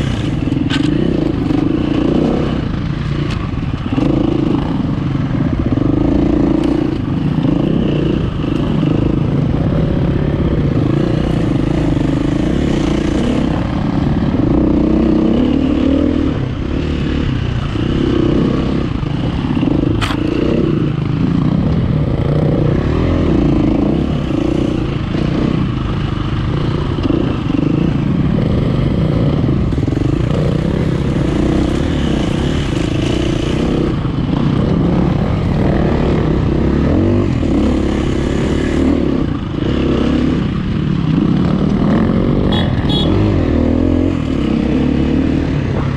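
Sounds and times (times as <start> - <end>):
dirt bike engine revving: 0.0 - 45.9
sharp click: 20.0 - 20.3.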